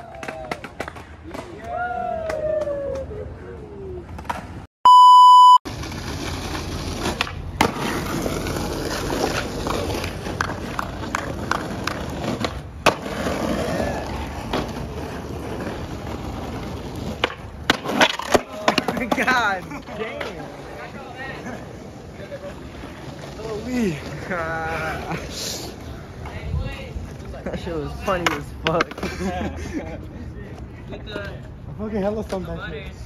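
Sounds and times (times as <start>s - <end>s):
electronic beep tone: 4.8s - 5.6s
skateboard clattering down: 5.7s - 19.4s
skateboard rolling on asphalt: 5.7s - 33.0s.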